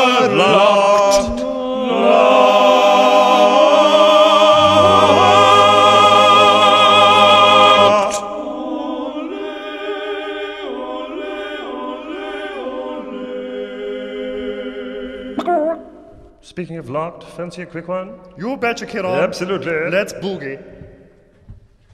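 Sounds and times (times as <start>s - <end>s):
operatic tenors singing: 0.0s - 16.1s
instrumental backing music: 4.5s - 6.6s.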